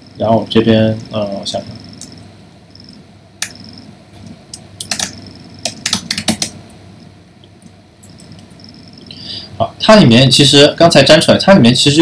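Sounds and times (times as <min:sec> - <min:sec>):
computer keyboard key clicks: 0:04.5 - 0:06.6.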